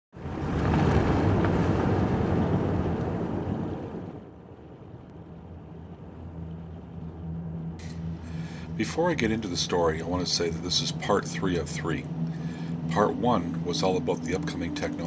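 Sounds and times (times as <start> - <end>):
vehicle driving past: 5.3 - 15.0.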